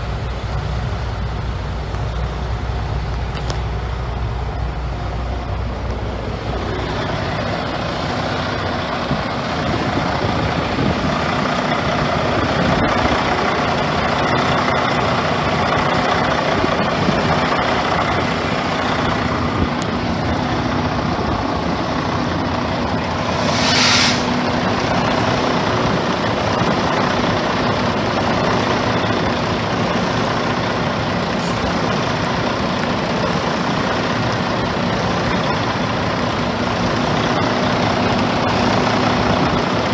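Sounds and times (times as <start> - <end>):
diesel truck engine idling: 0.0 - 39.9
air brake hiss: 23.2 - 24.4, 31.4 - 31.7.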